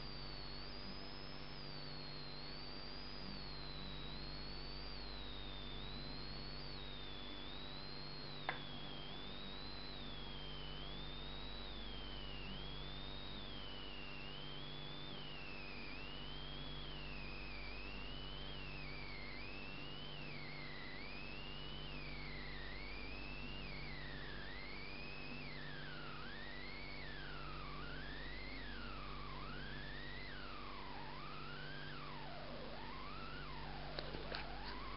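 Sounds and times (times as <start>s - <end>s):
steady hum and hiss: 0.0s - 34.9s
electronic tone sliding up and down: 25.8s - 34.9s.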